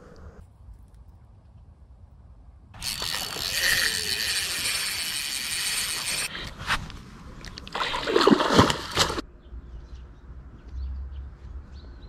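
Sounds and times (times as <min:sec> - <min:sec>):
fish thrashing and splashing: 0:07.6 - 0:09.2.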